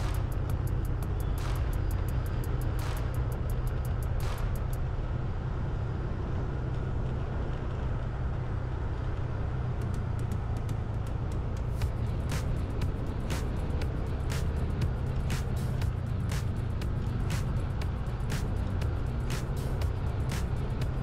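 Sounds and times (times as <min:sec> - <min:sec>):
fast ticking hi-hat: 0:00.0 - 0:04.8, 0:10.6 - 0:21.0
deep bass: 0:00.0 - 0:05.0, 0:09.9 - 0:21.0.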